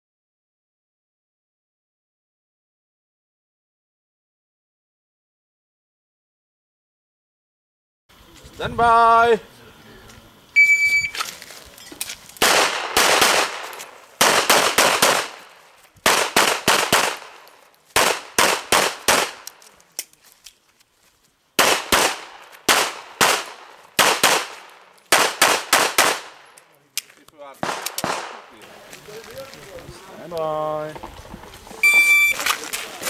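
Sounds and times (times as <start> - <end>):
shot timer beep: 10.6 - 11.2, 31.8 - 32.4
handgun shots with echo: 27.6 - 28.4.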